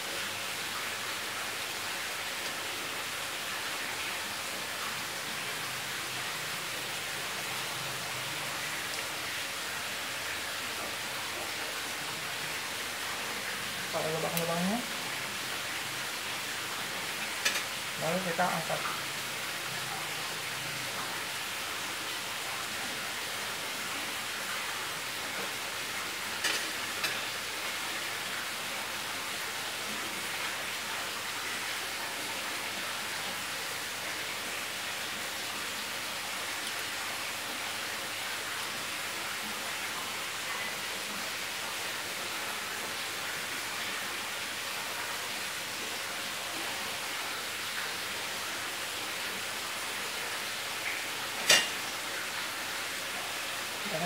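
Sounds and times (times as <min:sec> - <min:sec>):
batter sizzling in frying pan: 0:01.2 - 0:32.0, 0:49.4 - 0:52.5.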